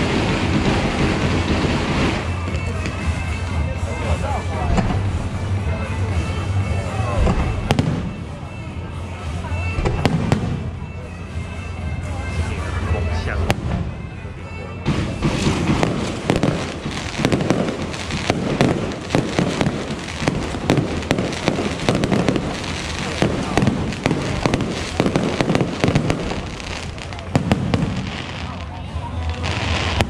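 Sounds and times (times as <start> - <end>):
fireworks bursting: 0.0 - 11.0, 14.8 - 30.0.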